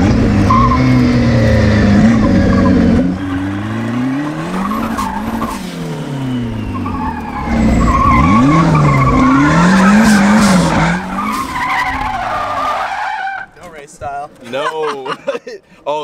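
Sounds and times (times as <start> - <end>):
car engine revving hard: 0.0 - 12.2
tyres squealing: 2.0 - 5.6, 6.3 - 13.8.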